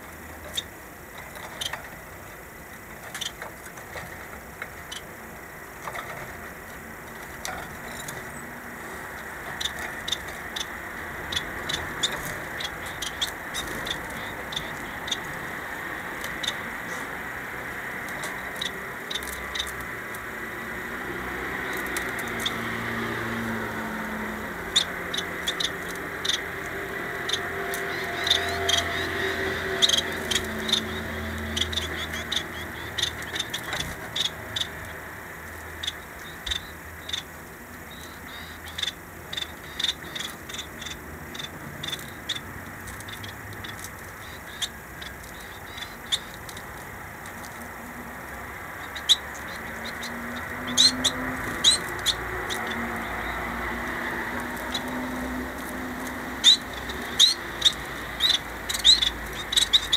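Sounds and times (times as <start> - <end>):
faint steady background noise: 0.0 - 59.9
finches ticking and chirping: 0.0 - 59.9.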